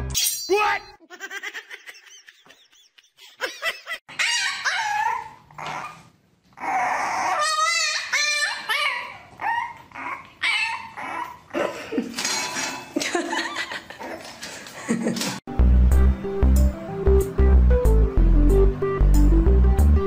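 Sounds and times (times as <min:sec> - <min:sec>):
dogs whining and yipping: 0:04.1 - 0:11.6.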